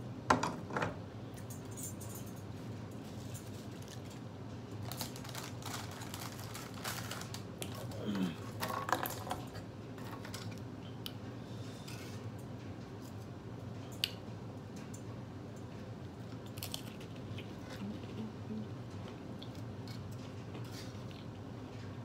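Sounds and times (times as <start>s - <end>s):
air conditioner hum: 0.0s - 22.0s
cracker packaging crinkling: 3.2s - 10.3s, 16.2s - 17.9s.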